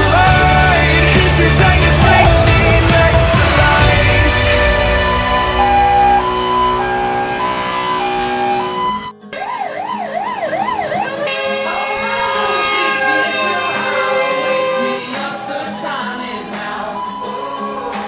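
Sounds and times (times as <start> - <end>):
background music: 0.0 - 18.0
fire engine siren: 1.7 - 18.0.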